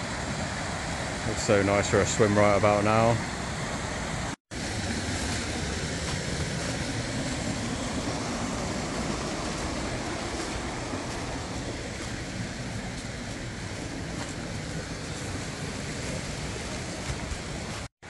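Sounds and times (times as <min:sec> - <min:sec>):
brook rushing over rocks: 0:04.5 - 0:17.9.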